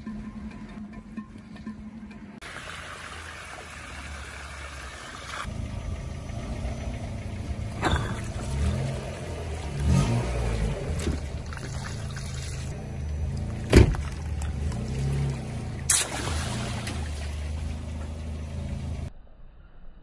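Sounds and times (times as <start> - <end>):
water hissing from a hose: 2.4 - 5.5, 15.9 - 17.4
water splashing: 2.4 - 5.5, 7.7 - 12.8, 13.8 - 18.3
car engine revving: 5.4 - 19.1.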